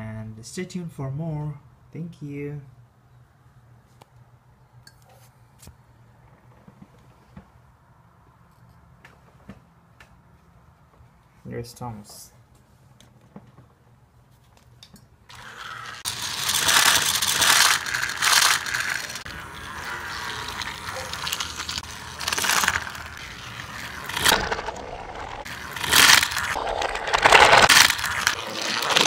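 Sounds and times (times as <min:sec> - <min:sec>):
toy train mechanical rattle: 0:15.3 - 0:29.0.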